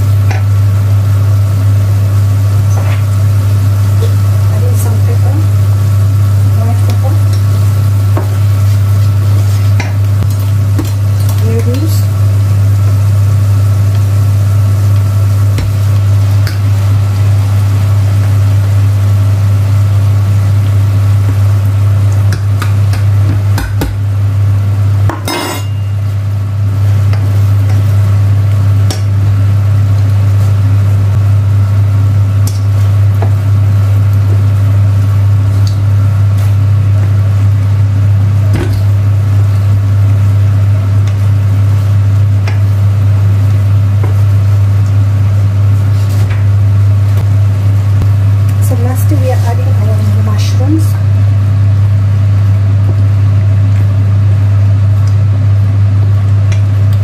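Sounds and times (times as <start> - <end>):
loud steady low hum: 0.0 - 57.0
wooden spoon scraping a pan: 8.2 - 10.0.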